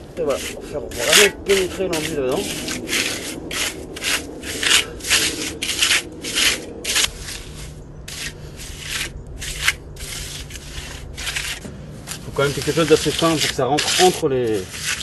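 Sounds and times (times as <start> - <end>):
plastering tool scraping: 0.2 - 15.0.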